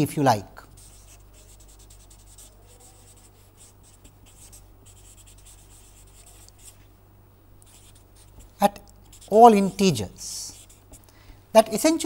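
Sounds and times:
steady low hum: 0.0s - 12.0s
marker scratching on paper: 0.7s - 6.8s, 7.6s - 9.8s, 10.5s - 11.0s.

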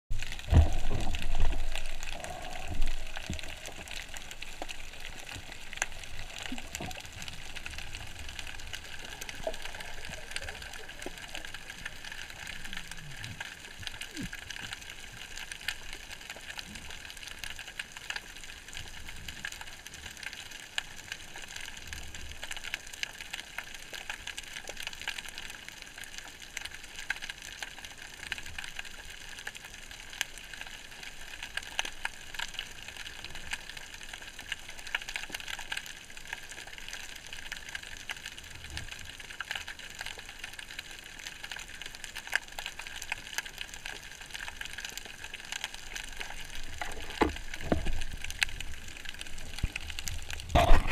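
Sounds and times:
faint crackling clicks: 0.1s - 50.9s
low thud: 0.4s - 1.6s
underwater hiss: 0.5s - 13.2s.

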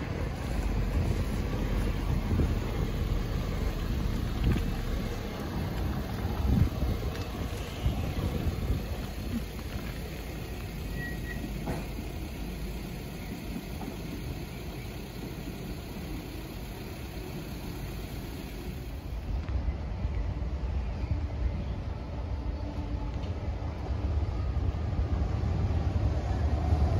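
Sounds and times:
road traffic rumble: 0.0s - 26.9s
wind on microphone: 5.5s - 9.9s.

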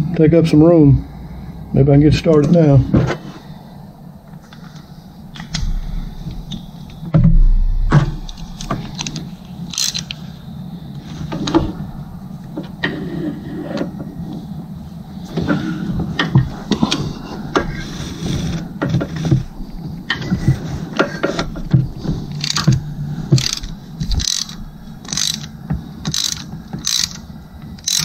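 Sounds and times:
heavy metal knock: 5.5s - 9.1s
socket wrench metal clicks: 23.4s - 27.2s, 27.8s - 28.0s.

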